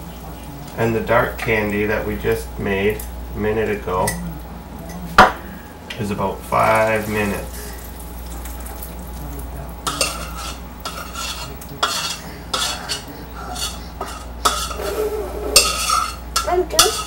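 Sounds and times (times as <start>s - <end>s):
steady low hum: 0.0s - 17.0s
utensil scraping steel saucepan: 9.8s - 17.0s.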